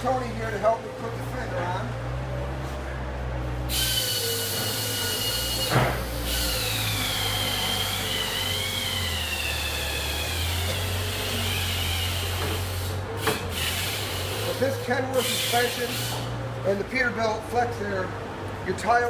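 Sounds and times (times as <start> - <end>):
motor running with high whine: 3.7 - 16.5.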